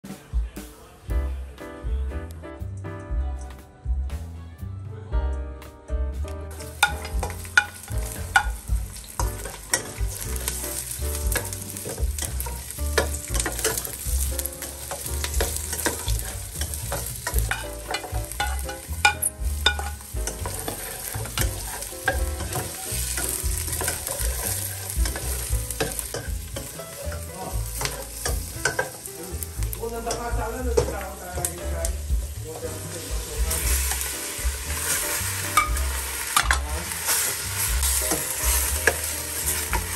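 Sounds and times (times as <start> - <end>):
food sizzling in hot oil: 6.5 - 39.9
utensil scraping and clicking pan: 11.3 - 29.1.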